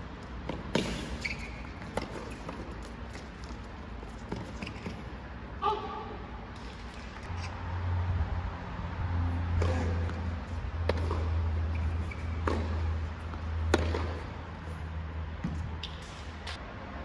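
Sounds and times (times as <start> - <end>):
tennis ball hit by rackets: 0.4 - 2.9, 9.5 - 14.4.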